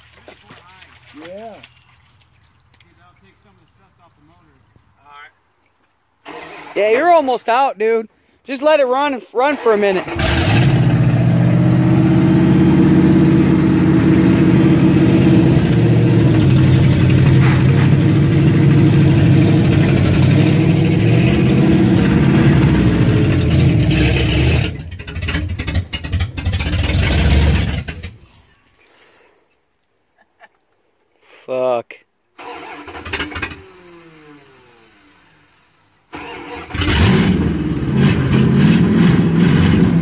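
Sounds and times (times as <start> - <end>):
truck engine running and stalling: 6.2 - 7.0, 9.5 - 28.3, 32.4 - 40.0.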